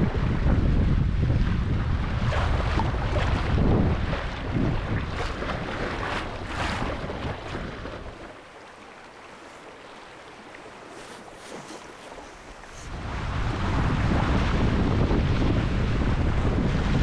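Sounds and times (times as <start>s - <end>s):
bow wave rushing and splashing: 0.0s - 17.0s
wind buffeting microphone: 0.0s - 17.0s
small waves hissing: 6.2s - 13.5s.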